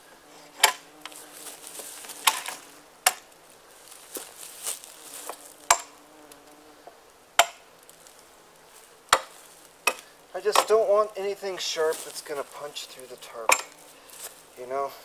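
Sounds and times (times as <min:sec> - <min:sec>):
fly buzzing: 0:00.0 - 0:14.7
hatchet chopping wood: 0:00.6 - 0:00.8, 0:02.2 - 0:03.3, 0:05.2 - 0:06.0, 0:07.4 - 0:07.7, 0:09.1 - 0:10.9, 0:13.5 - 0:13.8.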